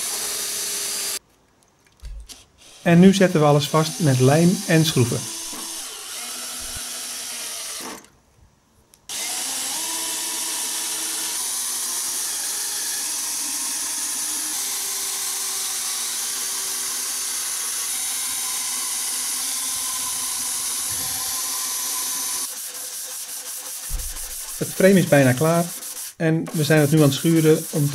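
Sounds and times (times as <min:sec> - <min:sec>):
cordless drill driving screws: 0:03.8 - 0:08.1, 0:09.1 - 0:22.5.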